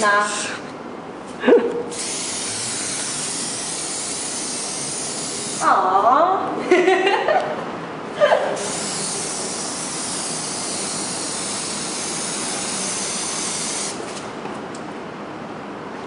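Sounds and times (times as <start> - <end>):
spray paint can hissing: 1.9 - 5.6, 8.6 - 14.2.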